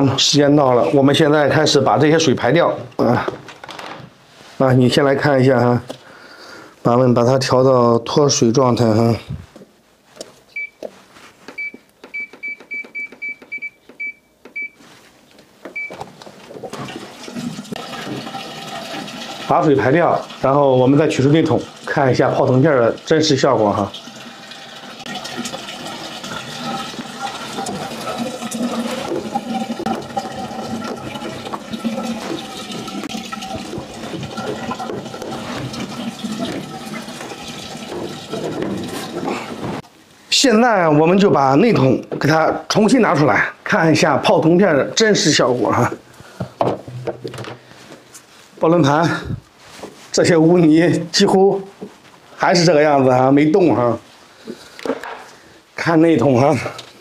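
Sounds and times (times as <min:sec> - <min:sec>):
washing machine beeps: 0:10.5 - 0:10.8, 0:11.6 - 0:14.8, 0:15.7 - 0:16.0
water rushing draining: 0:16.7 - 0:39.8.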